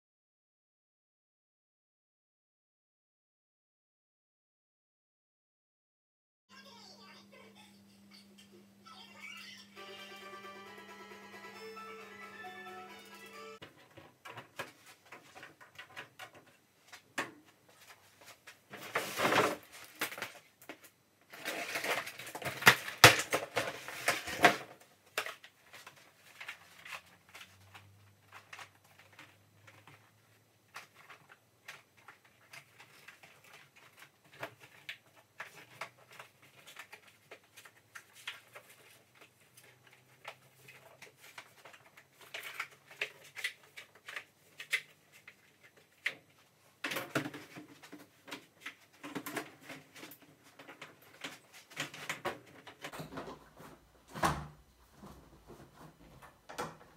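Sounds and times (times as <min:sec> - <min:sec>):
plastic crackling and rustling: 0:13.6 - 0:56.9.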